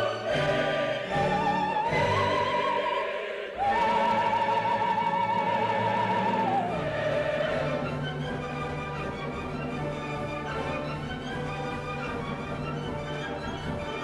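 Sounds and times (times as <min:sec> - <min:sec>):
operatic soprano singing: 0:00.0 - 0:08.4
orchestra playing: 0:00.0 - 0:14.0.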